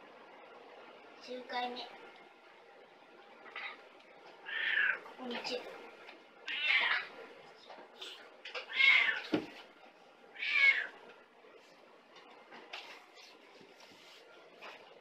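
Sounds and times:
cat meowing: 0:04.4 - 0:05.0, 0:06.5 - 0:07.1, 0:08.6 - 0:09.3, 0:10.4 - 0:11.0.

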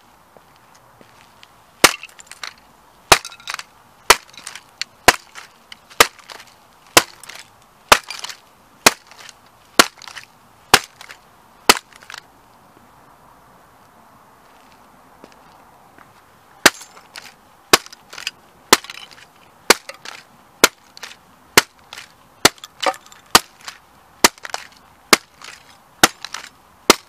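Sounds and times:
plastic toy cracking underfoot: 0:01.8 - 0:12.2, 0:17.0 - 0:27.0.

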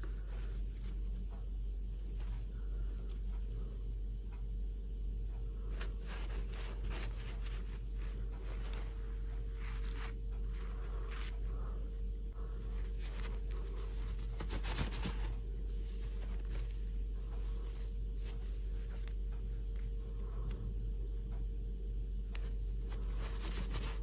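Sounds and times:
steady low hum: 0:00.0 - 0:24.0
rustling and scraping of dolls: 0:05.7 - 0:11.5, 0:12.6 - 0:19.1, 0:22.8 - 0:24.0.

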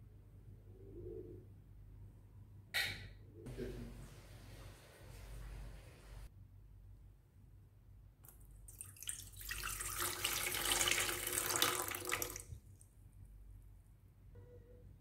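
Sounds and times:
water pouring into metal pot: 0:08.7 - 0:12.6.

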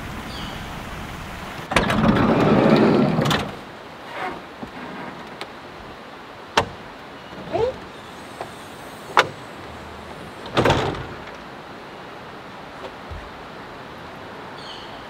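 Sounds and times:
roof clunk: 0:01.7 - 0:05.6, 0:06.5 - 0:11.6
roof latch clicking: 0:06.6 - 0:11.4
short squeak: 0:07.2 - 0:10.7.

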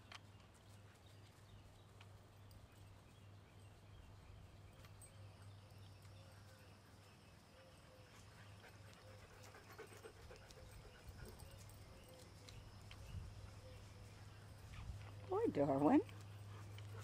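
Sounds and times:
dogs moving on grass: 0:08.1 - 0:17.0.

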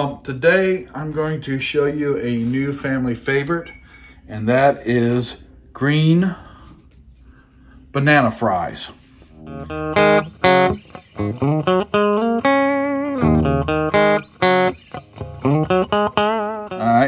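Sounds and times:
plucked guitar notes: 0:09.4 - 0:17.0.

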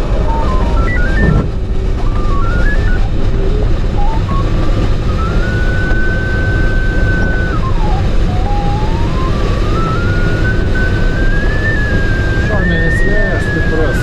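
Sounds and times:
electronic variometer tone: 0:00.0 - 0:14.0
rushing air: 0:00.0 - 0:14.0.

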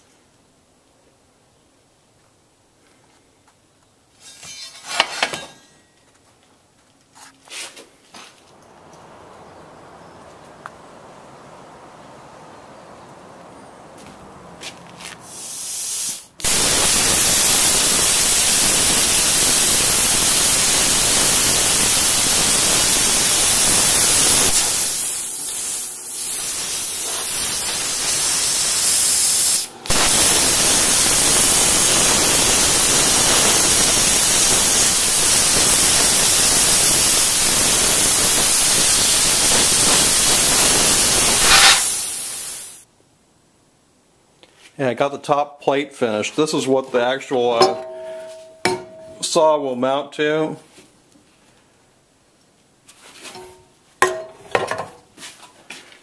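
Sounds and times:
plasma cutter hissing: 0:15.2 - 0:42.8.

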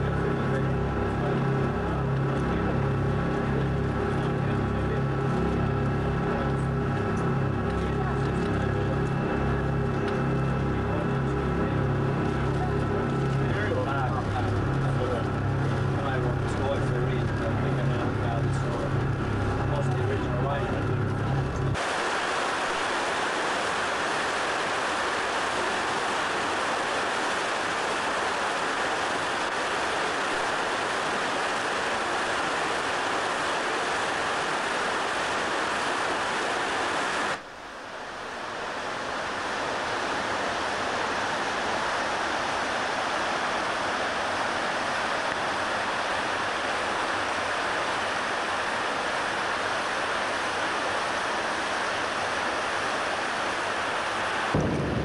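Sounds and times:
fast-flowing water rushing: 0:21.8 - 0:55.0.

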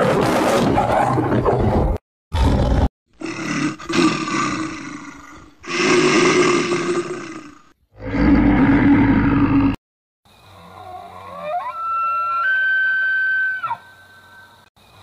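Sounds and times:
large animal roaring: 0:02.3 - 0:09.8.

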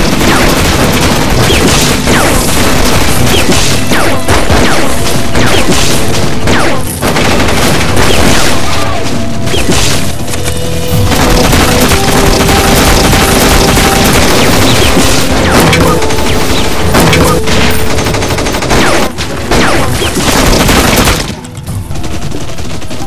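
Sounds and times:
gunfire: 0:00.0 - 0:10.3, 0:11.0 - 0:23.0
film music: 0:00.0 - 0:23.0.

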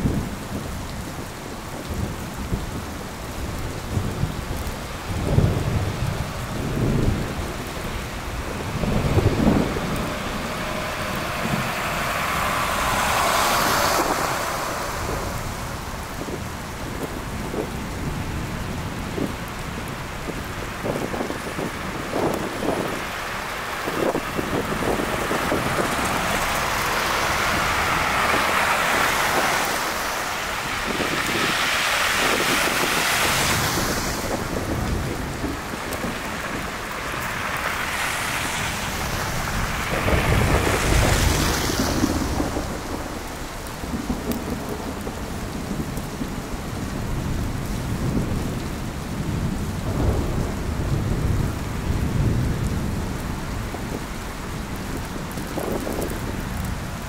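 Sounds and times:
low thumps and rumbles: 0:03.9 - 0:23.2
vehicles swishing past on slush: 0:08.0 - 0:17.2, 0:20.7 - 0:45.5
hiss of wet snow and slush: 0:08.2 - 0:16.7, 0:19.9 - 0:46.0.

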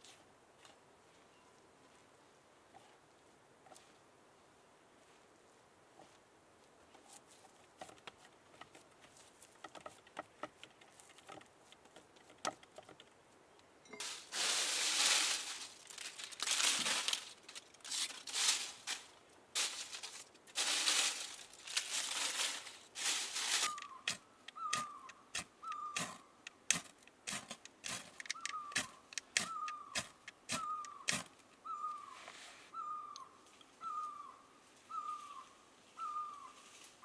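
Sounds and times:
faint ticks and taps: 0:07.8 - 0:13.7
dry leaves crumpled by hand: 0:14.0 - 0:24.2.

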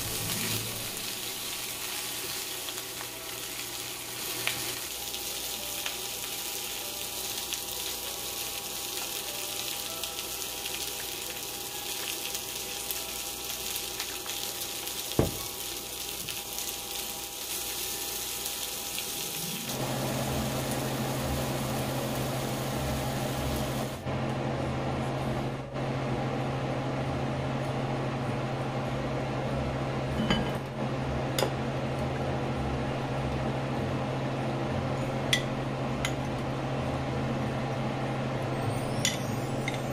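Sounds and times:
food sizzling in a frying pan: 0:00.0 - 0:24.0.

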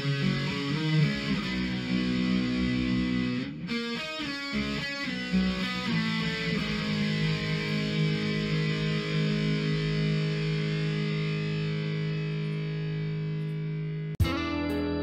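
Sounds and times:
guitar background music: 0:00.0 - 0:15.0.

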